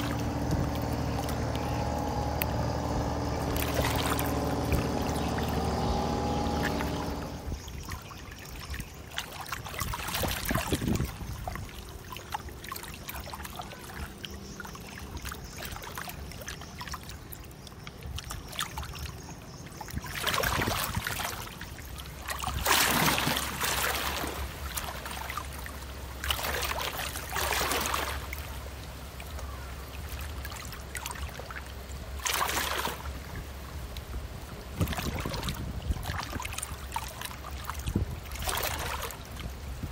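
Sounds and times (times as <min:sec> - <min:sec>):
pitched engine drone: 0:00.0 - 0:07.8
low ship engine rumble: 0:00.0 - 0:08.3, 0:09.8 - 0:39.9.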